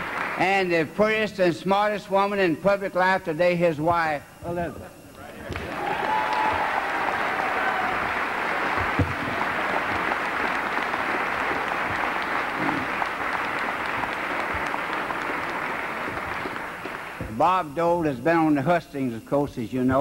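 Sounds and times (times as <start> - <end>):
crowd applauding: 0.0 - 0.7, 5.4 - 17.3.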